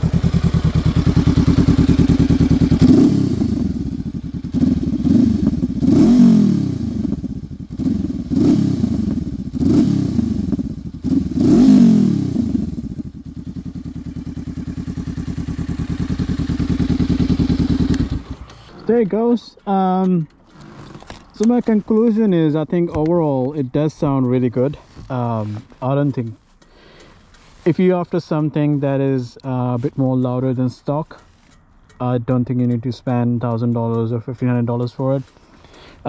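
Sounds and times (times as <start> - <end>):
motorcycle engine idling and revving: 0.0 - 19.1.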